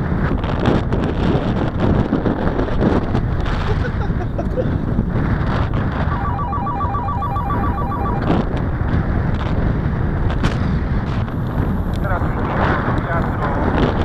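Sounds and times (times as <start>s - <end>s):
wind buffeting microphone: 0.0s - 6.2s, 8.2s - 14.0s
fast electronic beeps: 6.0s - 8.3s.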